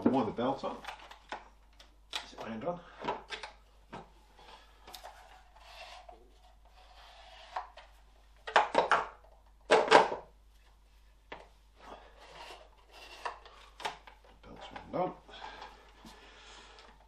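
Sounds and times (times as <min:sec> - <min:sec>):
plastic and metal parts clattering: 0:08.4 - 0:10.2.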